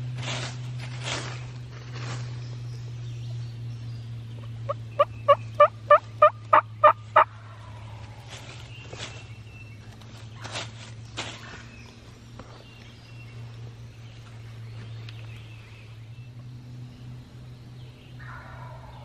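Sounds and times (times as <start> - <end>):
steady low hum: 0.0 - 19.0
turkey yelps: 18.2 - 19.0.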